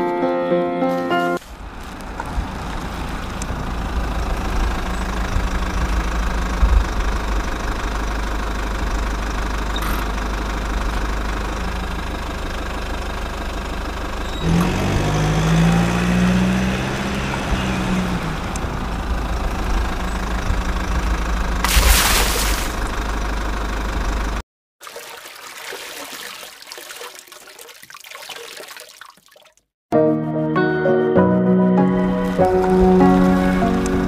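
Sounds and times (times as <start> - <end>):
engine running: 1.4 - 24.4, 31.8 - 34.0
pitched engine tone: 3.6 - 24.4.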